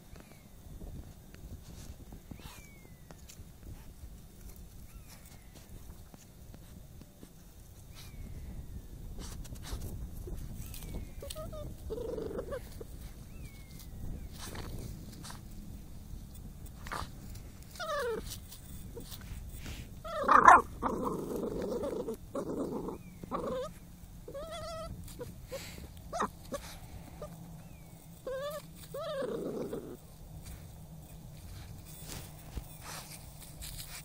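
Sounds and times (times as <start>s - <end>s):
scratchy scuffling: 9.2s - 34.0s
puppy whining: 10.2s - 14.8s, 16.8s - 30.6s
puppy yelp: 10.7s - 13.5s, 17.7s - 19.2s, 20.0s - 30.0s.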